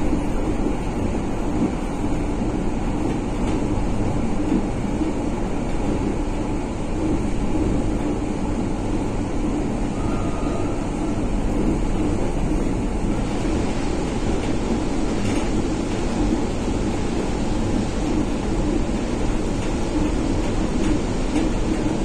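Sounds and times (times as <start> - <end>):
train wheels rumbling: 0.0 - 22.0
faint brief tone: 10.0 - 11.2.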